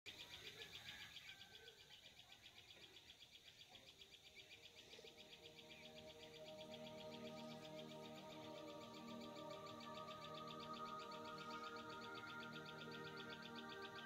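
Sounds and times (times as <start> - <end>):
insect chirping: 0.1 - 14.0
soft background music: 4.0 - 14.0.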